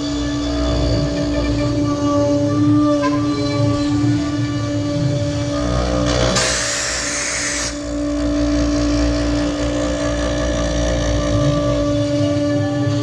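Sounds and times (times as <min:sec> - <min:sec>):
router spindle cutting wood: 0:00.0 - 0:13.0
loud burst of hiss: 0:06.3 - 0:07.8.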